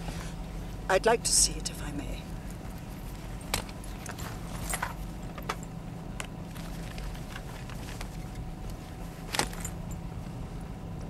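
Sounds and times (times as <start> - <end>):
car engine and road noise: 0.0 - 11.0
small clicks and rustles: 2.4 - 10.4.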